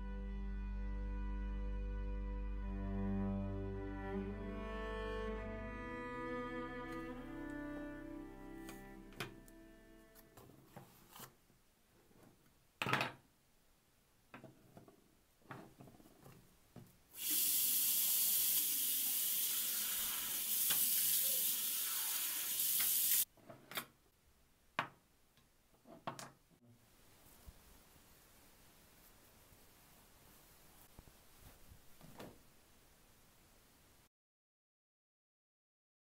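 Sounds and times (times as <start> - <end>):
tap running into washbasin: 17.2 - 23.2.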